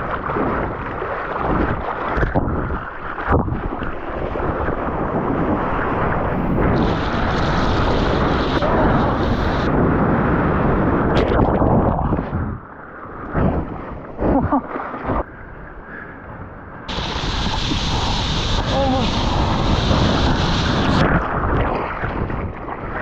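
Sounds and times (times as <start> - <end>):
splashes in whitewater: 0.0 - 11.8, 16.9 - 23.0
water rushing and splashing: 0.0 - 12.3, 16.9 - 23.0
wind buffeting microphone: 0.0 - 23.0
hiss of spray: 16.9 - 21.0.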